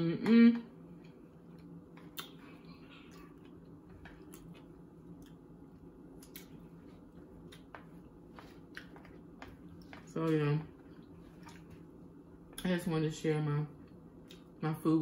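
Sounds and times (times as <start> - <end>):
faint steady hum: 0.0 - 15.0
faint chewing: 1.0 - 12.7.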